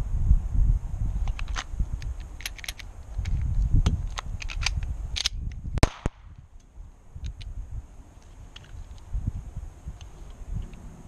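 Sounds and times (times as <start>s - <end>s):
pistol clicks and clatter: 1.3s - 7.5s
pistol shot: 5.8s - 6.3s.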